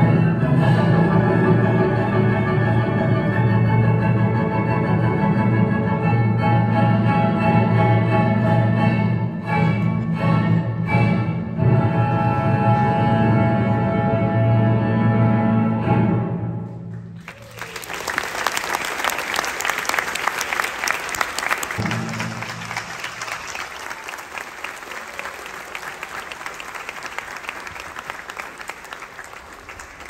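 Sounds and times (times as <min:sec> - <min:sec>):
ballet music: 0:00.0 - 0:16.9, 0:20.6 - 0:24.7
audience applause: 0:17.2 - 0:30.0.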